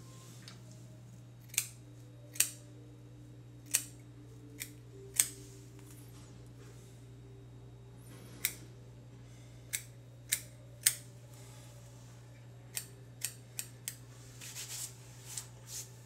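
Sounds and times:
scissors snipping hair: 0:01.4 - 0:02.7, 0:03.6 - 0:04.0, 0:04.6 - 0:05.4, 0:09.7 - 0:11.1, 0:12.7 - 0:14.0.

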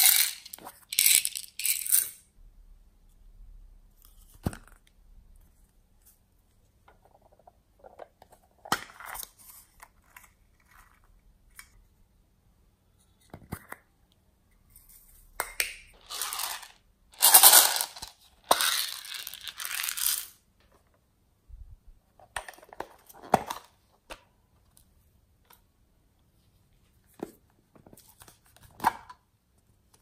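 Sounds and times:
dry decorations poured into bowl: 0:16.0 - 0:20.3.

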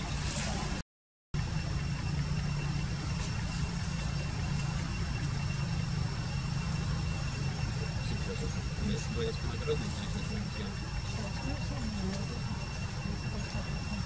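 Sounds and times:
low engine-like hum: 0:00.0 - 0:00.8, 0:01.4 - 0:14.0
high whine: 0:01.4 - 0:14.0.

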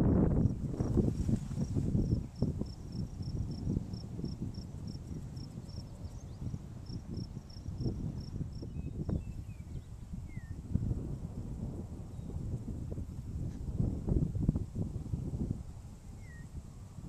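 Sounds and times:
wind buffeting microphone: 0:00.0 - 0:17.0
insect chirping: 0:01.6 - 0:06.2, 0:06.8 - 0:09.2.

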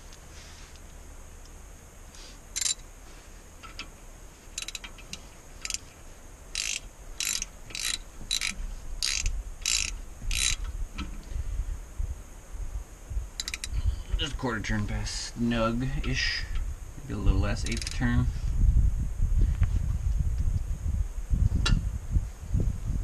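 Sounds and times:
hand ratchet clicking: 0:02.6 - 0:02.8, 0:04.6 - 0:05.9, 0:06.5 - 0:10.7, 0:13.4 - 0:13.8, 0:17.6 - 0:18.0.

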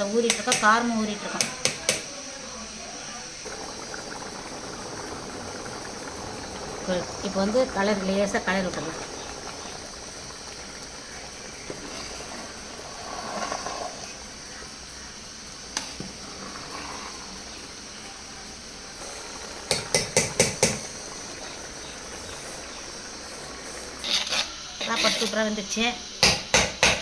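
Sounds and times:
rice boiling in a pot: 0:00.0 - 0:27.0
ladle tapping against pot: 0:01.4 - 0:02.1, 0:19.7 - 0:20.9
metal ladle stirring and scraping: 0:11.6 - 0:14.2, 0:16.2 - 0:17.4, 0:24.0 - 0:25.4.

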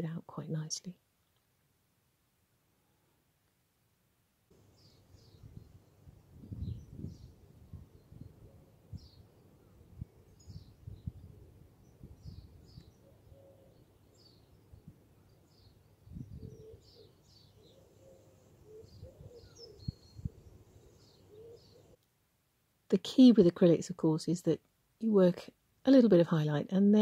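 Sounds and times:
small birds chirping: 0:04.5 - 0:22.0
low wavering bird calls: 0:12.2 - 0:14.6, 0:15.2 - 0:22.0.

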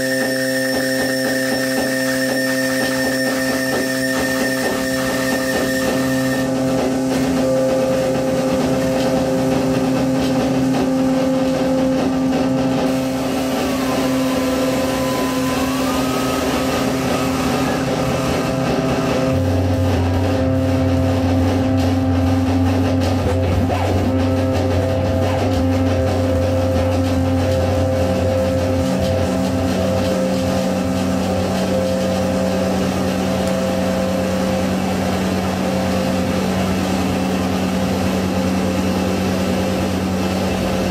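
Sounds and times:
higher tone sliding: 0:00.0 - 0:21.9
held electronic drone tones: 0:00.0 - 0:40.9
deep bass tone: 0:00.9 - 0:40.9.

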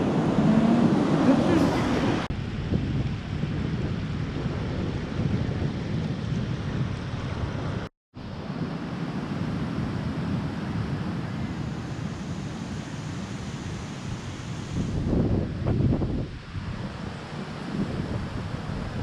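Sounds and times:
sea surf: 0:00.0 - 0:02.3, 0:07.7 - 0:19.0
wind buffeting microphone: 0:00.0 - 0:19.0.

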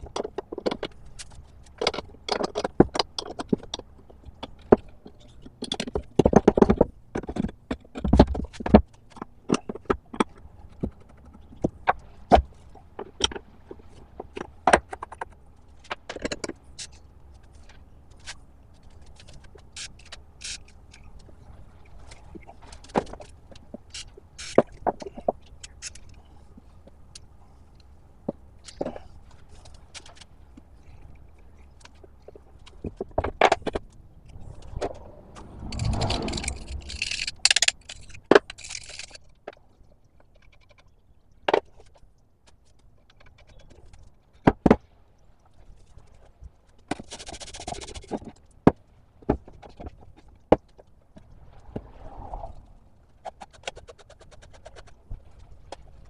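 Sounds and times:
metal clinks and scrapes: 0:35.5 - 0:39.2.

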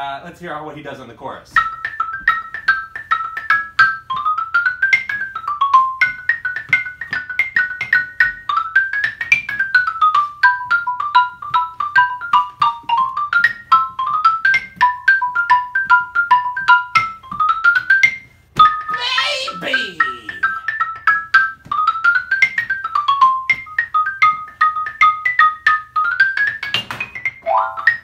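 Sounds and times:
xylophone melody: 0:27.4 - 0:28.0.

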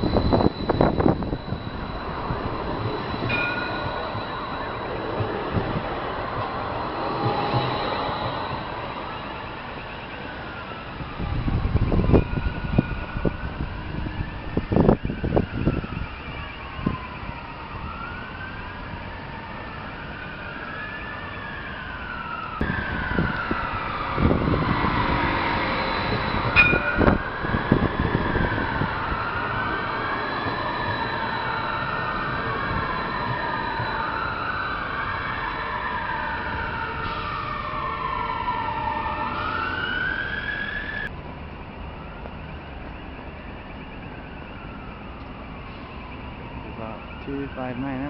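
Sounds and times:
tram knocks: 0:00.0 - 0:09.0, 0:22.6 - 0:29.0
steady rumble with high tones: 0:00.0 - 0:10.3
siren wailing: 0:00.0 - 0:48.0
tram rumbling past: 0:00.0 - 0:48.0.

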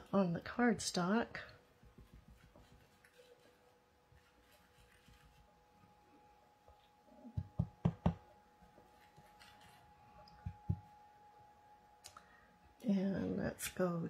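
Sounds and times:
faint steady hum: 0:00.0 - 0:14.0
tool knocking on desk: 0:07.4 - 0:08.2.

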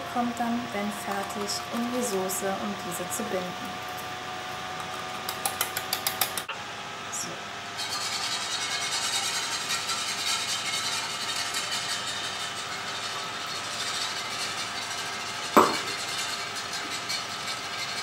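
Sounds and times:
whisk sloshing and scraping in pan: 0:07.8 - 0:18.0
sharp knock: 0:15.6 - 0:15.9.

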